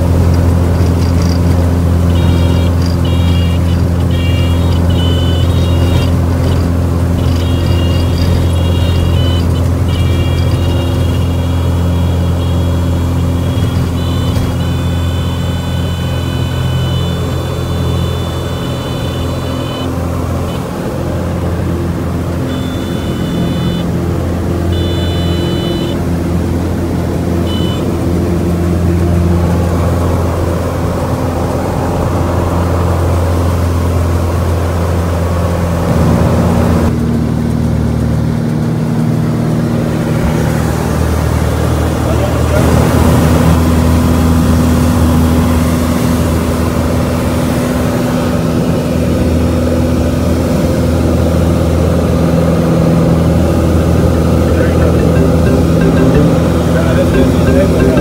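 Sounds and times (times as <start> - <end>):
propeller aircraft engine droning: 0.0 - 58.0
high steady tone: 2.0 - 20.7, 22.4 - 24.0, 24.7 - 26.0, 27.4 - 27.9, 53.8 - 58.0.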